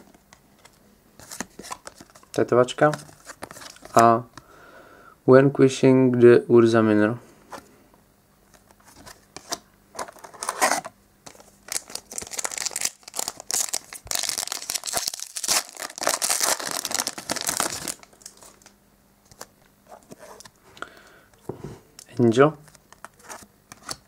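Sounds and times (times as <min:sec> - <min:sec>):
wrapper crinkling and tearing: 0:10.0 - 0:19.4
cards clicking and rustling: 0:22.0 - 0:24.0.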